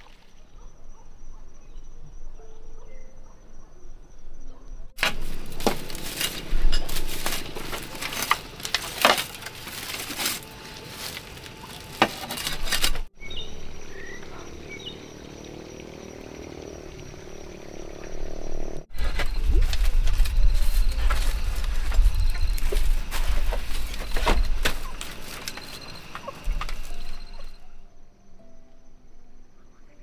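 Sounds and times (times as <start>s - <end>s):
dry grass rustling and snapping: 5.0s - 13.2s, 18.9s - 27.8s.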